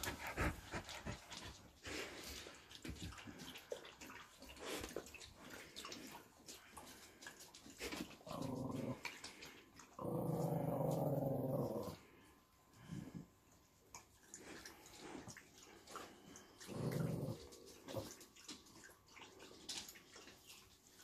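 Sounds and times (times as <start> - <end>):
dog growling: 8.2 - 12.2, 16.6 - 18.2.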